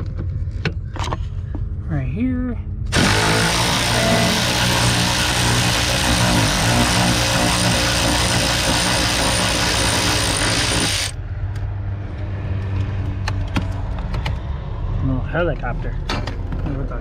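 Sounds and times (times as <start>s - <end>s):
low hum: 0.0s - 11.5s
loud mechanical running noise: 2.8s - 11.2s.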